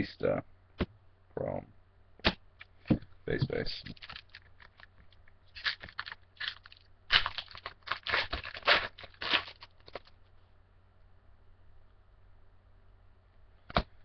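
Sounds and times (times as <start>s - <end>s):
foil wrappers rustling: 3.7s - 10.2s.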